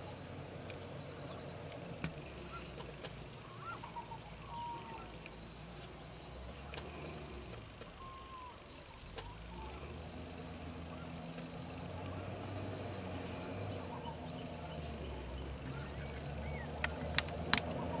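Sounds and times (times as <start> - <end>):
high-pitched insect chorus: 0.0 - 18.0
faint bird chirps: 2.4 - 11.9
van engine running: 6.0 - 18.0
sharp clicks: 16.8 - 17.8.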